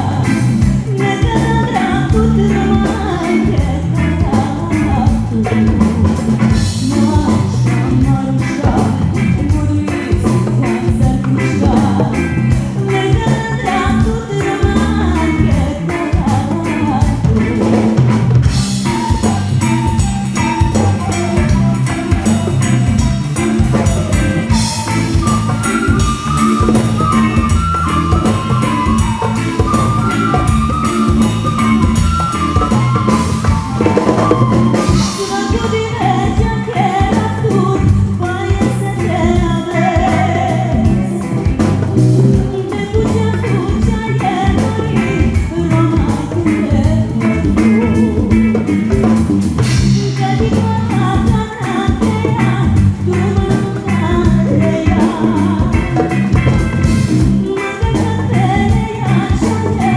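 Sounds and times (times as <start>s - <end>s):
drum kit: 0.0s - 59.9s
electric bass: 0.0s - 59.9s
keyboard: 0.0s - 59.9s
woman singing: 0.0s - 59.9s
flute melody: 18.4s - 37.5s.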